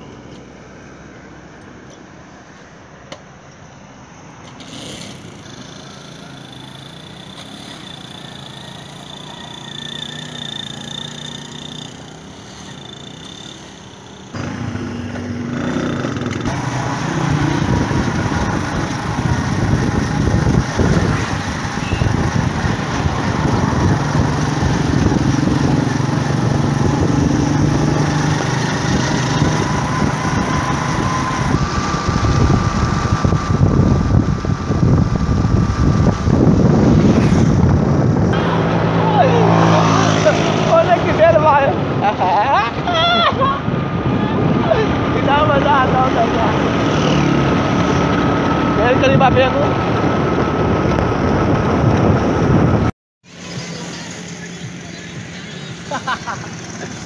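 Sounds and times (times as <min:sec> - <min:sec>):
wind and road noise: 0:00.0 - 0:57.0
thin high whine: 0:03.4 - 0:41.4
small vehicle engine running: 0:04.4 - 0:57.0.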